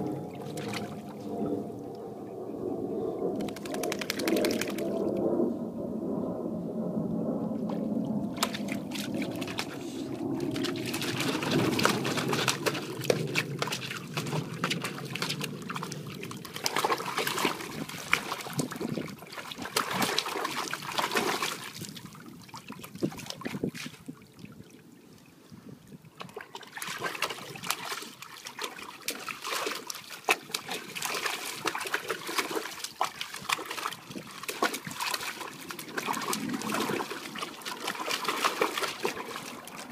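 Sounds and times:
dog splashing in water: 3.4s - 5.0s, 8.4s - 9.9s, 10.5s - 23.9s, 26.2s - 39.9s.

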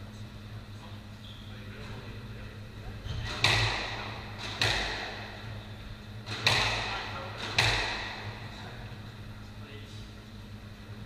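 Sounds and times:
squash ball hits echoing: 3.1s - 5.6s, 6.2s - 8.5s.

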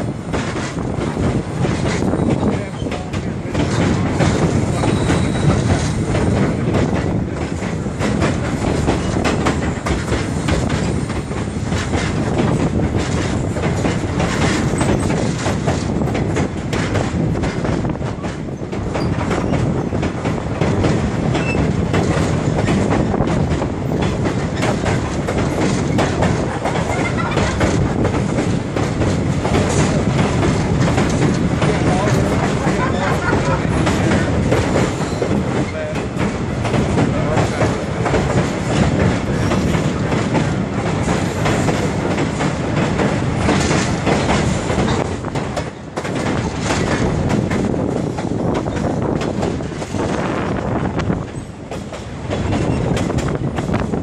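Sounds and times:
train wheels clattering on rails: 0.0s - 54.0s.

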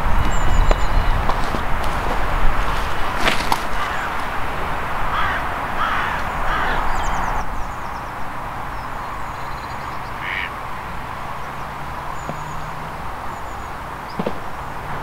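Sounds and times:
small birds chirping: 0.0s - 4.4s, 5.1s - 14.9s
crow cawing: 3.4s - 7.4s, 10.2s - 10.9s.

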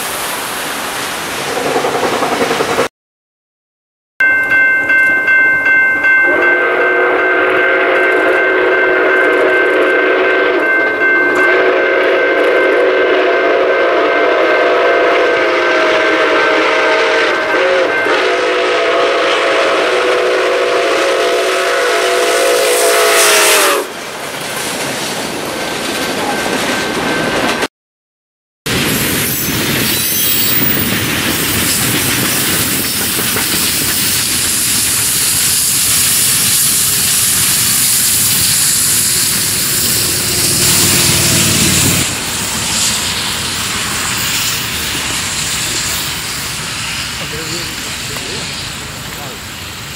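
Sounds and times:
rumble of passing train: 0.0s - 2.9s, 4.2s - 27.7s, 28.7s - 49.9s
steam locomotive chime whistle: 4.2s - 23.9s, 32.7s - 48.6s.

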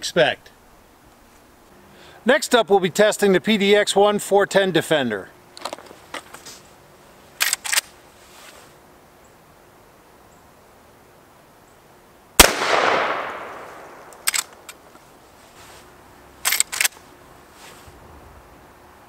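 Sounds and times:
gunshot with echo: 12.4s - 14.0s.

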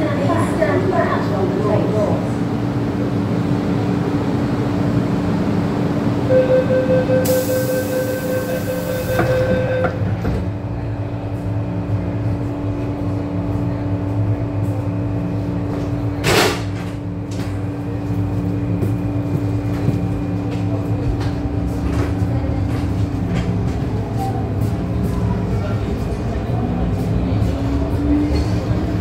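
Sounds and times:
train equipment hum: 0.0s - 29.0s
high steady tone: 6.3s - 10.0s.

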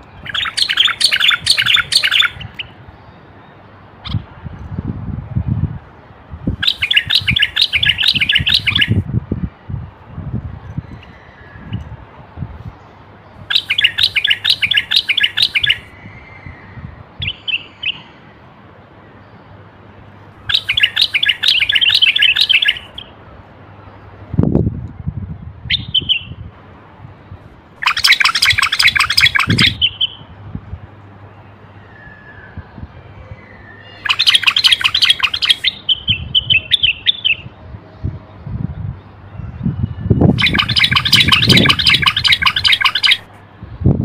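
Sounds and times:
bird singing high repeated notes: 0.2s - 3.2s, 6.6s - 9.0s, 13.5s - 15.9s, 20.5s - 23.1s, 27.8s - 30.2s, 33.5s - 37.5s, 39.8s - 43.3s.

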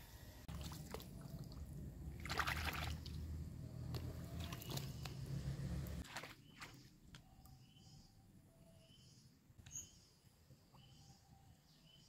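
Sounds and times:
feet splashing through water: 2.2s - 3.2s, 4.3s - 5.2s, 6.0s - 6.8s.

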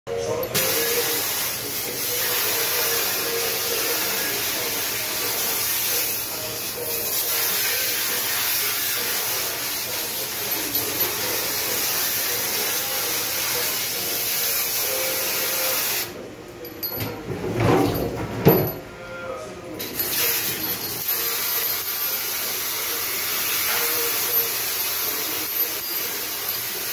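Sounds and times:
spray valve hissing water: 0.6s - 6.2s.

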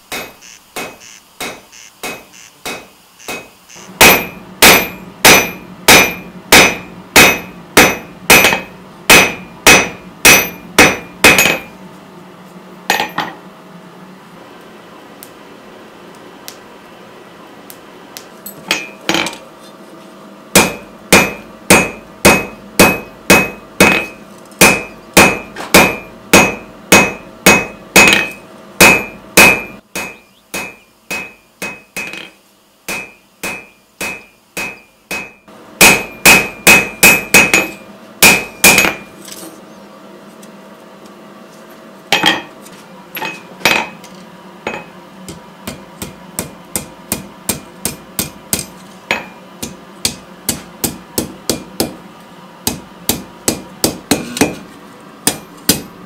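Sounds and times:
hammer striking steel on anvil: 0.0s - 11.8s, 12.9s - 13.4s, 18.7s - 19.4s, 20.5s - 39.2s, 42.1s - 42.5s, 43.2s - 44.0s, 44.7s - 52.0s, 52.6s - 56.0s.

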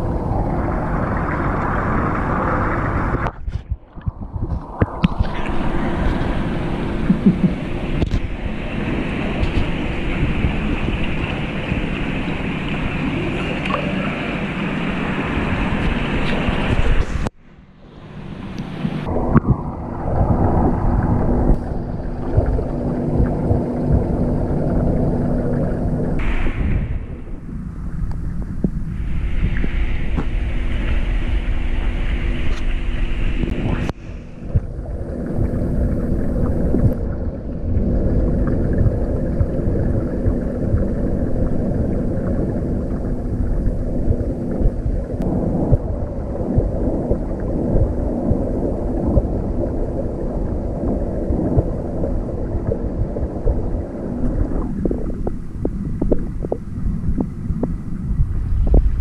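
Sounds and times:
muffled underwater rumble: 0.0s - 59.0s
steady low hum: 0.0s - 59.0s
bright hiss: 26.2s - 27.5s.

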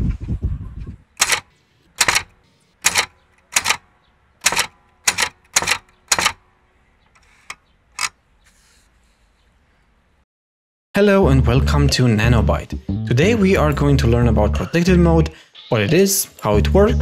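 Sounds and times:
typewriter key strikes: 1.2s - 1.4s, 2.0s - 3.8s, 4.4s - 6.4s
typewriter rattle: 1.2s - 3.8s, 4.4s - 6.4s.

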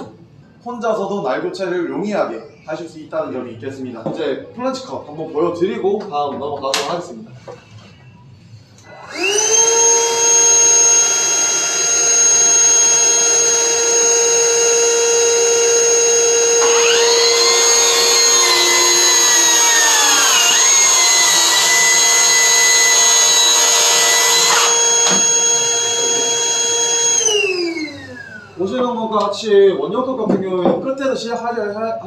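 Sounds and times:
track saw cutting wood: 8.8s - 28.7s
dust extractor humming: 8.8s - 29.0s.

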